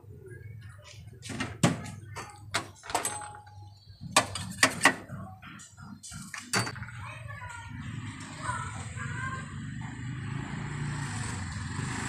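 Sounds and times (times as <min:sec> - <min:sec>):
utensils knocking and clicking: 0:01.3 - 0:06.8.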